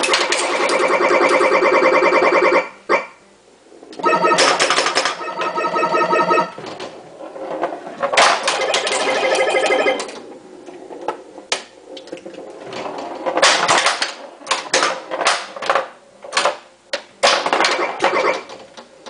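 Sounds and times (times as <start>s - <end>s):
buzzing electronic game sound: 0.0s - 3.2s, 4.0s - 6.6s, 8.5s - 10.2s
pinball ball and flipper clicks: 4.3s - 5.6s, 8.2s - 10.2s.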